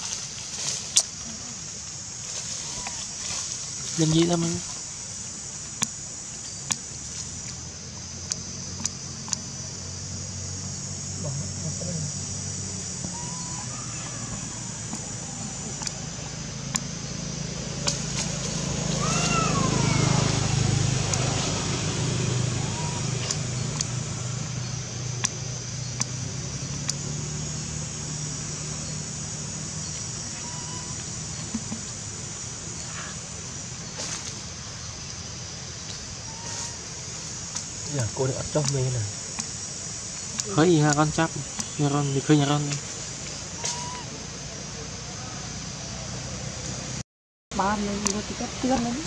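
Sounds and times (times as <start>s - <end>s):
high-pitched buzz: 1.2s - 45.0s
rising-then-falling call: 11.1s - 25.2s, 26.2s - 31.8s, 43.4s - 46.0s.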